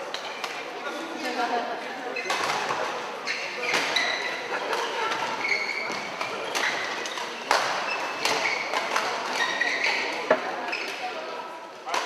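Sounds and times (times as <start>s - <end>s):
shoe squeaks on court floor: 2.2s - 4.4s, 5.2s - 8.8s, 9.4s - 11.0s.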